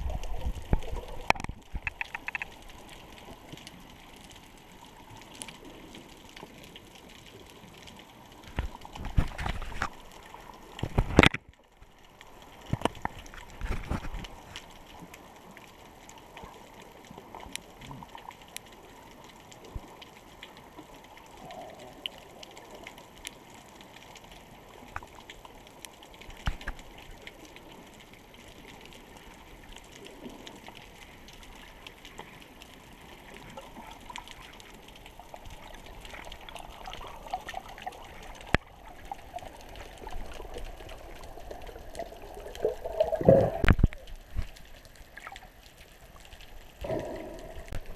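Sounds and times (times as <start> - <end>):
faint clicks: 0.2 - 47.9
muffled underwater hiss: 26.2 - 47.9.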